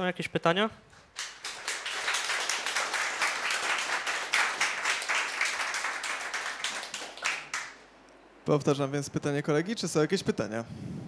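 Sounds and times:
audience applauding: 1.1 - 7.8.

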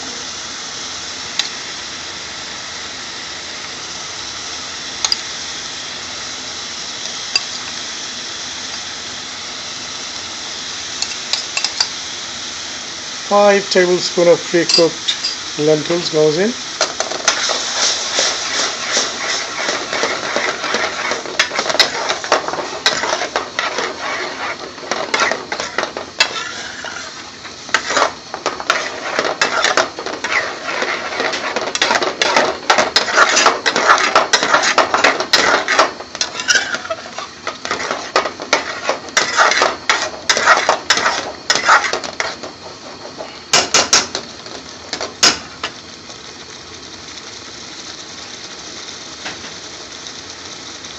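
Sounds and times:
metal spoon scraping a metal pan: 17.2 - 43.6.

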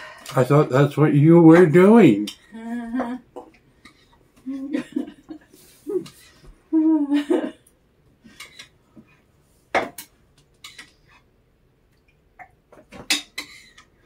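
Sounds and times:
plates and cutlery clinking: 8.3 - 9.1, 9.7 - 11.2, 12.4 - 14.0.

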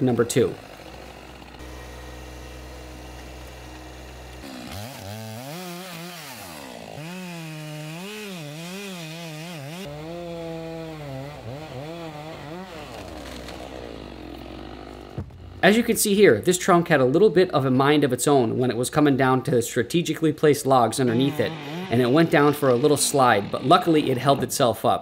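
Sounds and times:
chainsaw cutting wood: 0.0 - 15.9, 20.8 - 24.7.

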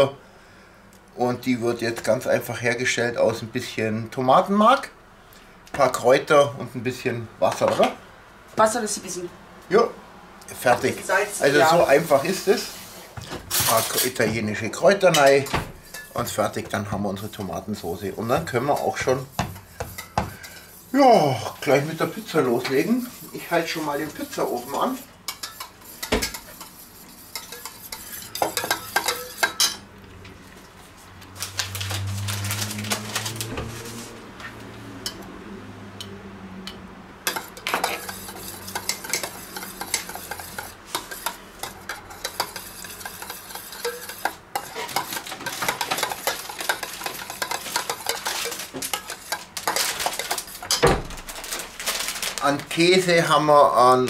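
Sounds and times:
spoon scraping metal bowl: 15.1 - 20.9, 21.5 - 29.8, 37.3 - 50.8.

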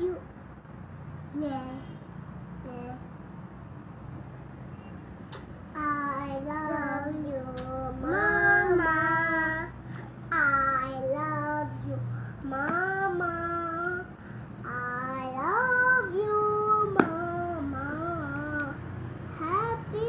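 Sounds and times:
children singing together: 5.8 - 9.7.

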